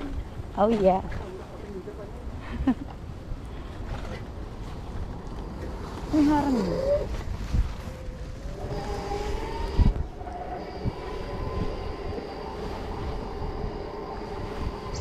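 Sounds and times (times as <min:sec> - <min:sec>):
electric bike motor whining: 0:05.4 - 0:15.0.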